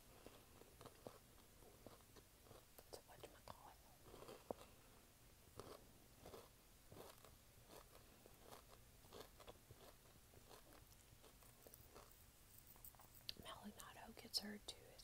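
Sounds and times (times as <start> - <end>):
chewing candy bar: 0.1 - 2.7, 3.4 - 4.8, 5.6 - 13.4.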